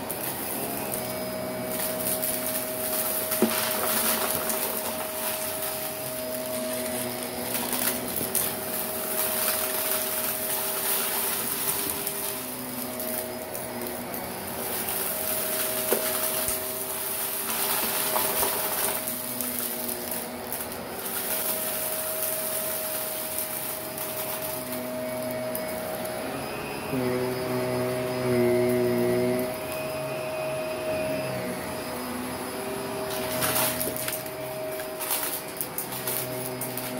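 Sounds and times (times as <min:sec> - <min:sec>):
grit crackling in vacuum: 0:00.0 - 0:36.9
vacuum cleaner motor hum: 0:00.0 - 0:36.9
sharp clicks of debris: 0:01.7 - 0:25.9, 0:33.1 - 0:36.9.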